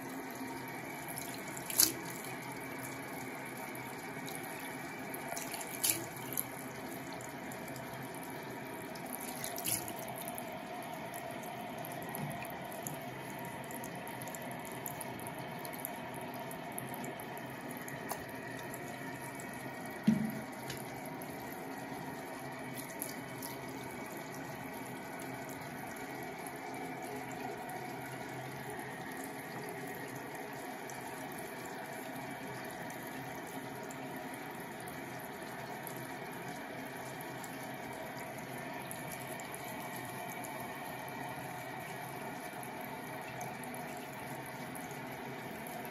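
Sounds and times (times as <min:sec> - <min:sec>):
tap water running into basin: 0:00.0 - 0:45.9
low thump: 0:20.1 - 0:20.5.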